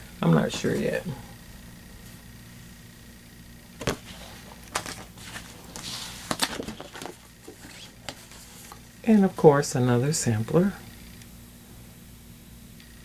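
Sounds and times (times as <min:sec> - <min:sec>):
paper and plastic bag rustling: 0:03.9 - 0:08.8.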